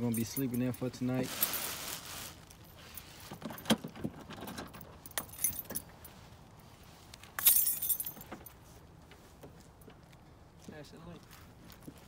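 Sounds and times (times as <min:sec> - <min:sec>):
jangling rustle: 0:00.0 - 0:06.4, 0:07.2 - 0:08.8
collar and leash jingling: 0:02.7 - 0:06.1, 0:07.4 - 0:08.4.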